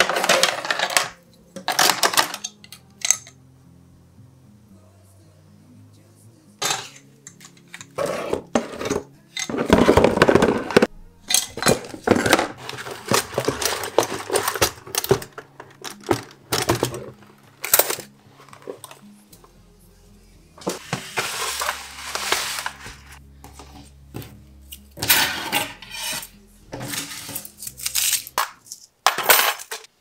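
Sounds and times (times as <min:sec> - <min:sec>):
cutlery clattering in plastic tray: 0:00.0 - 0:03.4, 0:06.6 - 0:19.0, 0:25.0 - 0:26.2, 0:26.8 - 0:29.9.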